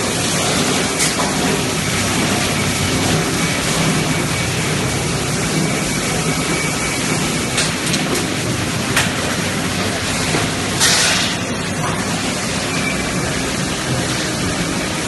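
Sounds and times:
machine noise with low hum: 0:00.0 - 0:15.0.

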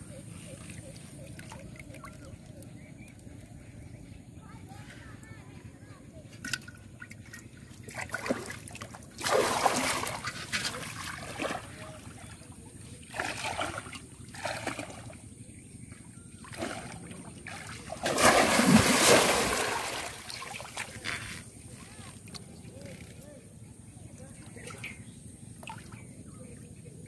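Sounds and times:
feet wading through water: 0:06.9 - 0:22.6
fish trap splashing into water: 0:08.0 - 0:11.7, 0:16.5 - 0:20.9.

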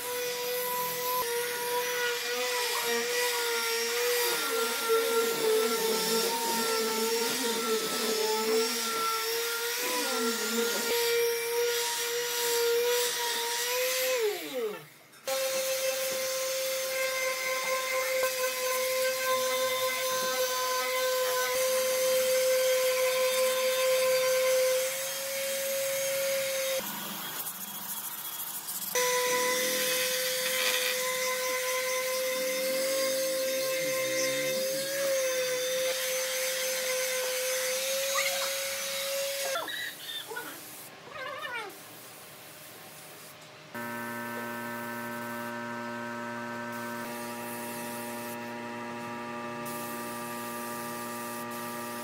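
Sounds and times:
electric sander whining: 0:43.8 - 0:52.0.

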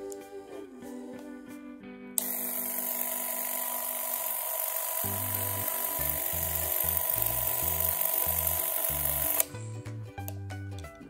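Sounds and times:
background music: 0:00.0 - 0:11.0
camera motor whirring: 0:02.2 - 0:09.4.

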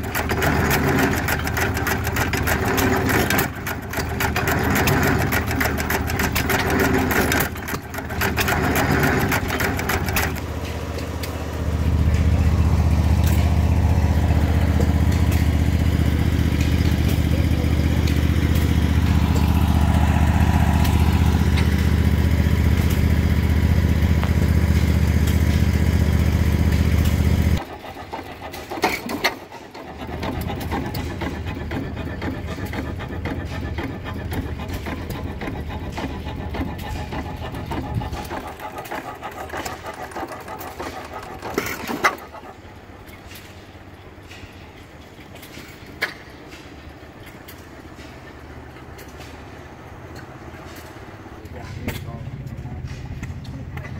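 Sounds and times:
gas engines ticking and clattering: 0:00.0 - 0:53.9
loud low rumble: 0:10.4 - 0:27.6.

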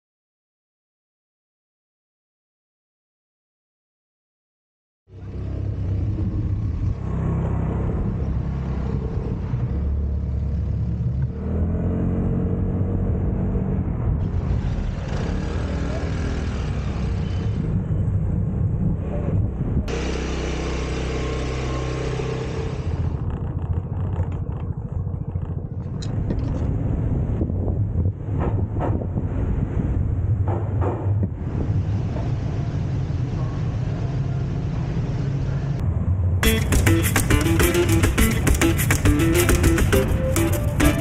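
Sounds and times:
wind on microphone: 0:17.4 - 0:19.9, 0:23.1 - 0:32.5
scooter engine running: 0:19.9 - 0:26.0, 0:36.4 - 0:41.0.

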